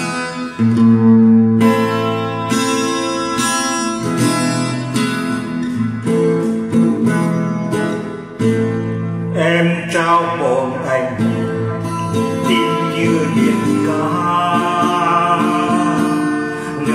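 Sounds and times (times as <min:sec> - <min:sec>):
acoustic guitar playing: 0:00.0 - 0:16.9
person singing: 0:09.3 - 0:16.9.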